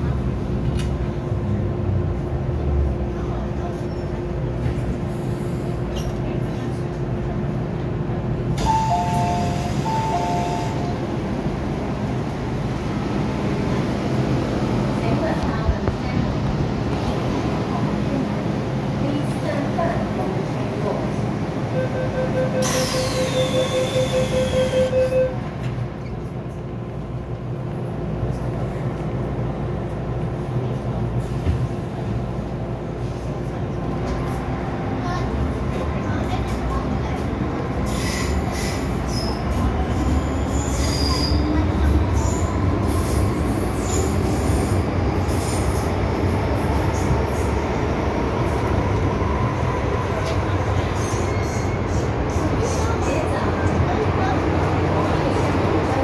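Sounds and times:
train carriage rumble: 0.0 - 56.0
train doors shutting: 8.5 - 12.2, 21.8 - 26.3
door warning beeps: 8.6 - 10.9, 21.8 - 25.4
train doors hissing open: 8.6 - 11.0, 22.5 - 25.0, 37.8 - 41.4.

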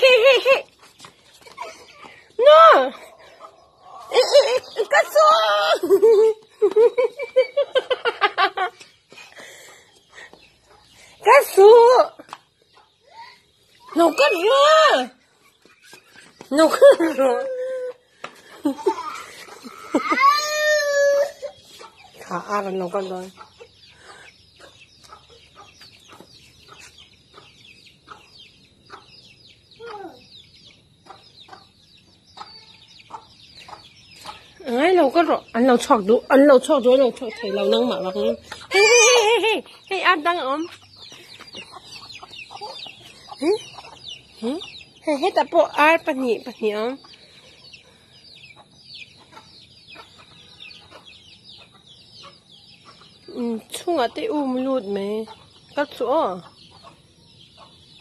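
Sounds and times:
high falling chirps: 1.5 - 9.4.

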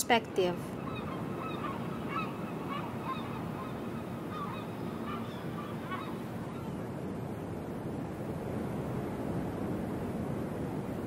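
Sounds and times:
gulls calling: 0.0 - 7.0.

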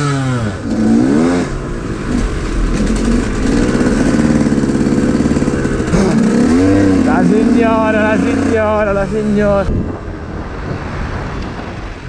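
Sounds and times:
two-stroke motorbike engine: 0.0 - 9.3.

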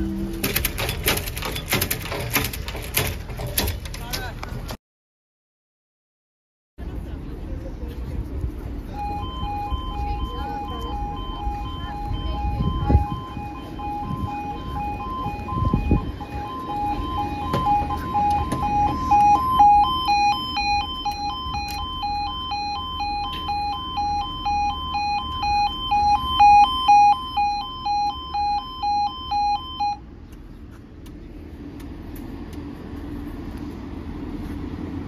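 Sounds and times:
higher-pitched alarm: 8.9 - 30.0
level crossing alarm pulsing: 8.9 - 30.1.

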